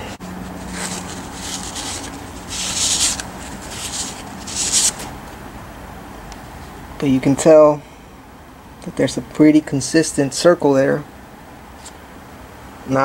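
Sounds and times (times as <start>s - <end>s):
scratchy rubbing strokes: 0.0s - 5.2s.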